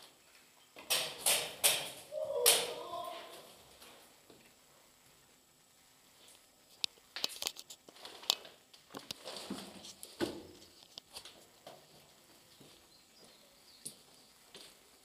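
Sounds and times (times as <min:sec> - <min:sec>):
footsteps crunching over rubble: 0:06.2 - 0:15.0.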